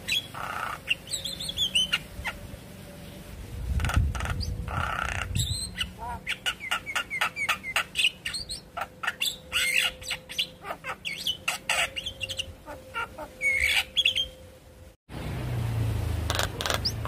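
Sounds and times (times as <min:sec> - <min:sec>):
bird chirping and whistling: 0:00.0 - 0:02.4, 0:03.8 - 0:14.4.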